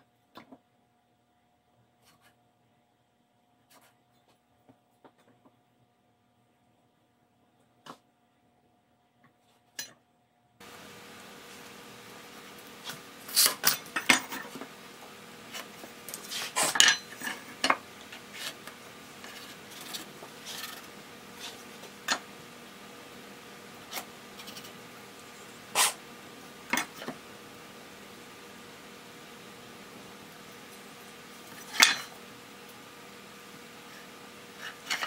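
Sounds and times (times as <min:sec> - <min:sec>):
steel tools clinking on wood: 0:16.7 - 0:17.8.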